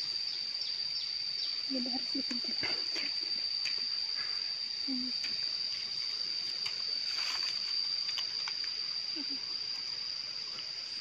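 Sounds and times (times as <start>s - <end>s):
high-pitched insect drone: 0.0s - 11.0s
leaf rustles: 5.4s - 11.0s.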